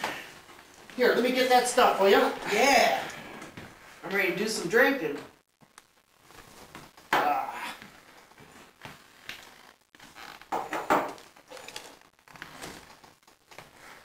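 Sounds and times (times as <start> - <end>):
objects being handled: 8.1 - 13.8.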